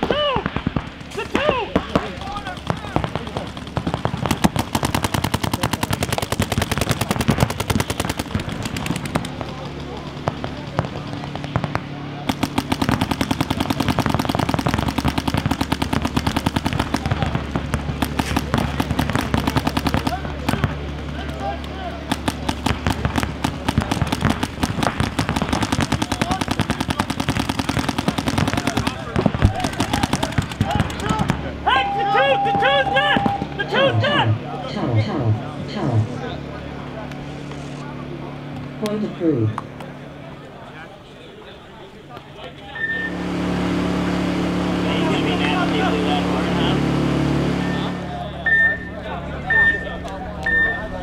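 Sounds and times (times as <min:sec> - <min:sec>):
paintball guns firing: 0:00.0 - 0:31.5, 0:33.1 - 0:33.6.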